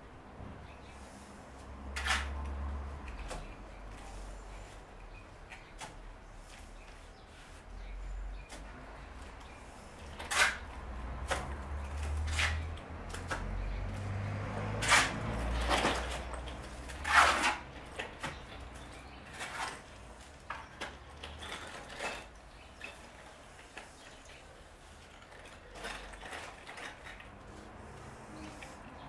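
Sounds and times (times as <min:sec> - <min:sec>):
trowel scraping mortar: 0:02.0 - 0:02.4, 0:10.0 - 0:13.4, 0:14.7 - 0:17.8.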